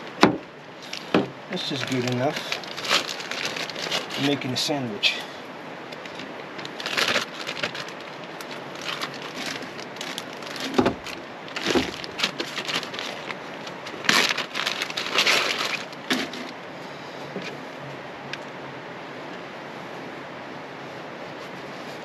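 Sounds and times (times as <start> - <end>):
plastic bag rustling: 0.0 - 5.2, 5.8 - 16.7.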